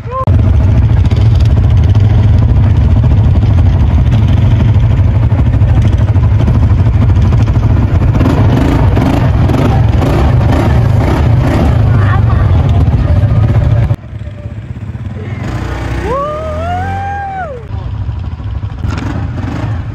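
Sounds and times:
vehicle engine rumbling: 0.0s - 19.9s.

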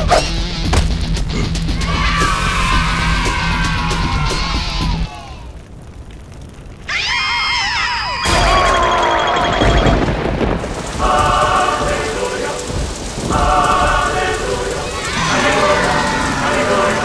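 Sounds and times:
heavy rain pouring: 0.7s - 17.0s
cartoon characters screaming: 1.8s - 5.6s, 6.9s - 9.6s, 14.8s - 17.0s
thunder crash: 8.0s - 17.0s.

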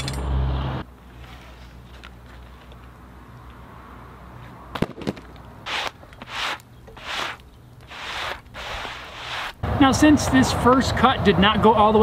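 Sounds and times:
gloved hand sweeping sawdust: 5.7s - 9.6s.

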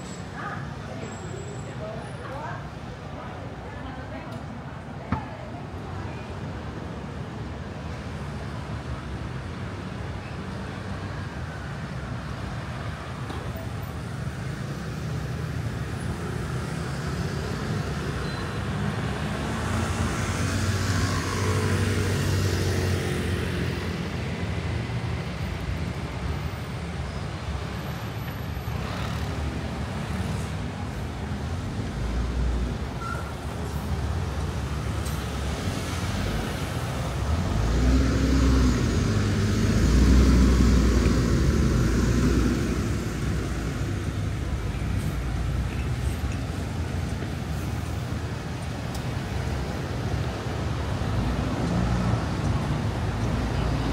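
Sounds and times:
cars passing: 3.8s - 53.9s.

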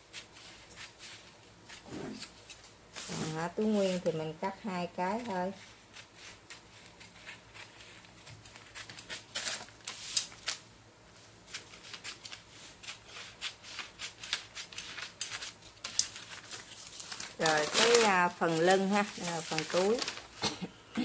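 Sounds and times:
paper crackling: 4.9s - 10.6s, 11.4s - 20.5s
shears snipping paper: 11.5s - 20.3s.

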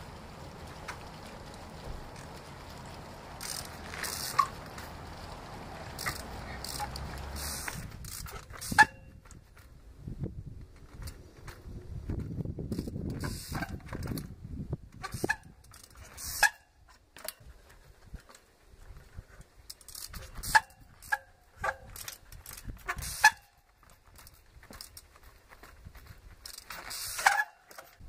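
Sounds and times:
freewheel clicking: 0.0s - 9.7s, 10.6s - 14.3s, 14.9s - 28.0s
brake squeak: 3.4s - 5.1s, 5.8s - 9.7s, 12.2s - 14.3s, 14.9s - 17.4s, 18.9s - 28.0s.

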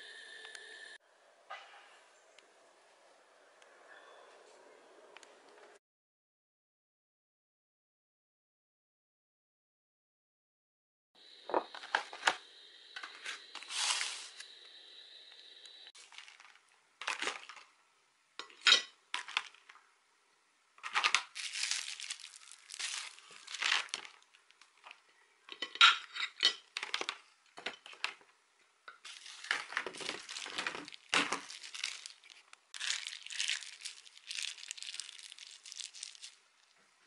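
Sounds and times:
plastic bags crinkling: 13.6s - 14.4s, 16.0s - 17.7s, 20.8s - 25.0s, 29.0s - 36.8s.

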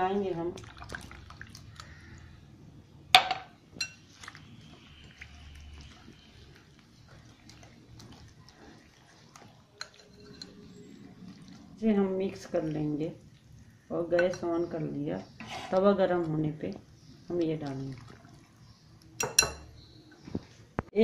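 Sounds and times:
utensil scraping glass bowl: 7.2s - 11.1s
sharp clink of utensil: 19.2s - 19.7s.

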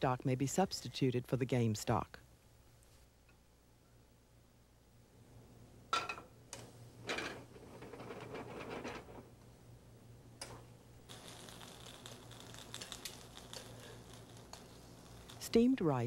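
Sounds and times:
soft crackle of tiny pops: 10.4s - 15.7s.

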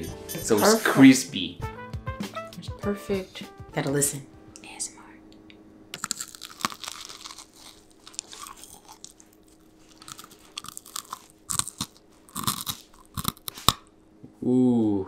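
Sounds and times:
crispy bread crunching: 6.0s - 13.8s.

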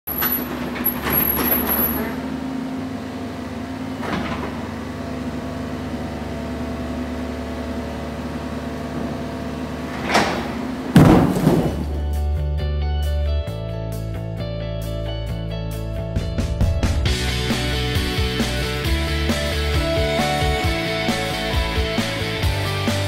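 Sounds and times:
excavator diesel engine running: 0.1s - 12.2s, 17.0s - 23.0s
wall crashing to floor: 10.0s - 12.0s
knocks on wall: 10.9s - 11.9s
music: 11.7s - 23.0s.

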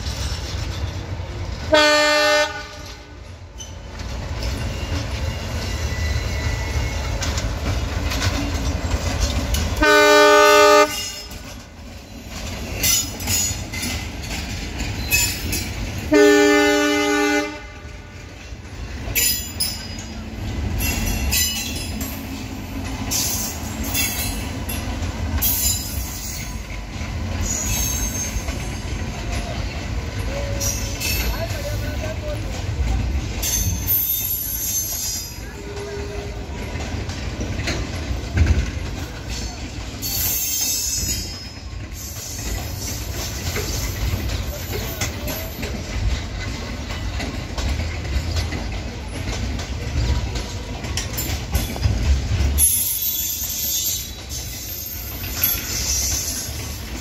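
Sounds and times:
diesel locomotive engine rumbling: 0.0s - 57.0s
train wheel clatter: 0.0s - 57.0s
locomotive horn blasts: 1.7s - 3.1s, 9.8s - 11.2s, 16.1s - 17.9s
high wheel squeals: 3.6s - 7.8s, 25.4s - 31.6s, 33.4s - 36.6s, 39.5s - 45.8s, 52.6s - 56.9s.

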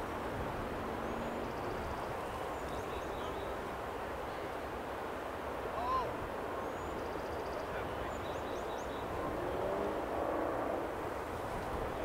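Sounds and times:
small birds chirping: 1.0s - 3.6s, 6.7s - 9.2s.

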